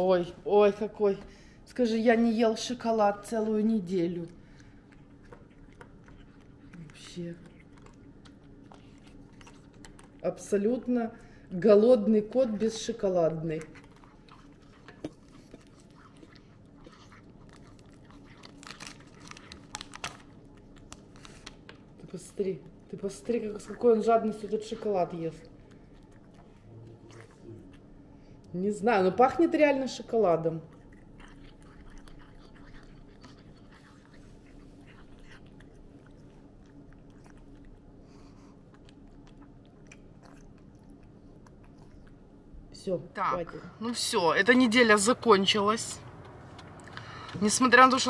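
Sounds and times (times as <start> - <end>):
cat chewing crunchy treat: 2.8 - 11.5, 12.6 - 28.5, 30.4 - 42.5, 46.0 - 47.6.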